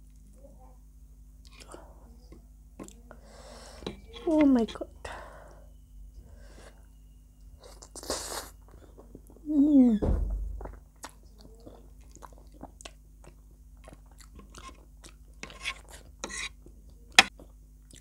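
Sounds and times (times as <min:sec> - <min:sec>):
wet chewing: 0:10.6 - 0:18.0.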